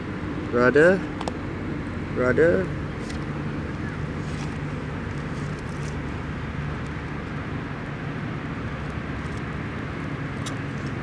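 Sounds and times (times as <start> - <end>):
constant hum: 0.0 - 11.0
low background rumble: 0.0 - 11.0.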